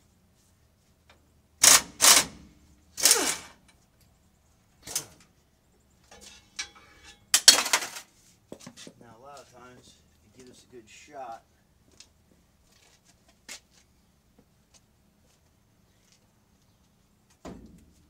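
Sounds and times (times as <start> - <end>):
hand tools clanking on steel: 6.1 - 8.1.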